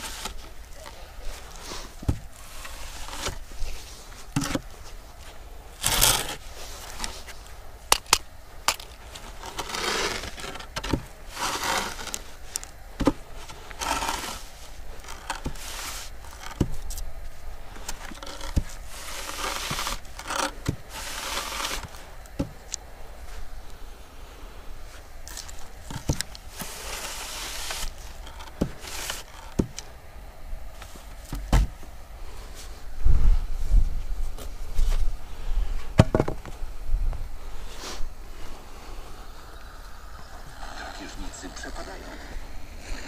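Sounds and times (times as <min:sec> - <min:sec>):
wooden board scraping across sand: 0:00.0 - 0:17.1, 0:17.7 - 0:22.6, 0:24.8 - 0:29.8.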